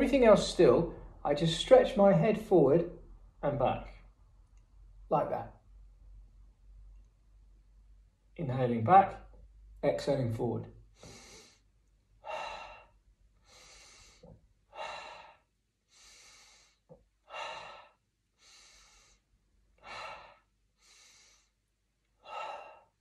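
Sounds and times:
man breathing in and out: 10.8 - 23.0.

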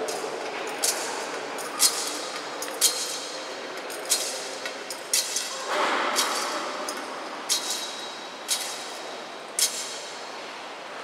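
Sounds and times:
murmur in echoing church: 0.0 - 11.0.

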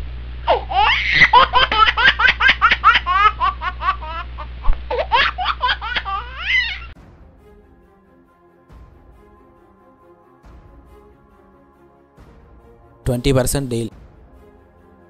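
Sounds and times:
low hum: 0.0 - 7.8
laughter ringtone: 1.0 - 4.2.

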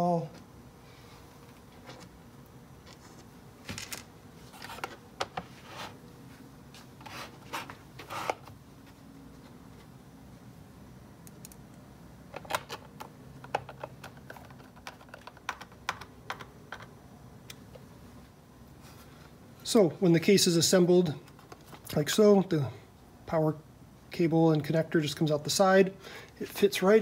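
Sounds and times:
plastic case and screws clicking: 12.4 - 16.9.

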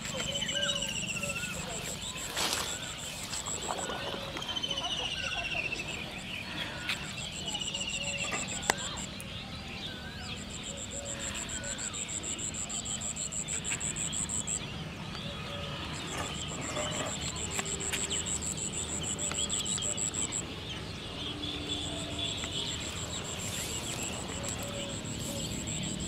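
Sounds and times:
insect trilling: 10.4 - 14.6, 16.4 - 20.4, 21.9 - 26.0.

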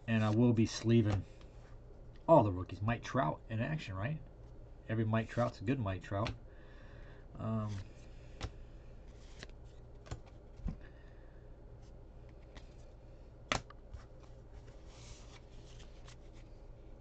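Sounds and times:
cardboard cards rustling: 7.7 - 10.8, 13.5 - 16.6.

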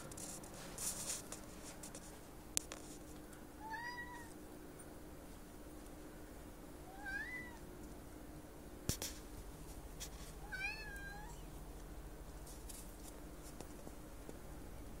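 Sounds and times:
cat meowing: 3.6 - 4.4, 6.9 - 7.6, 10.4 - 11.4.

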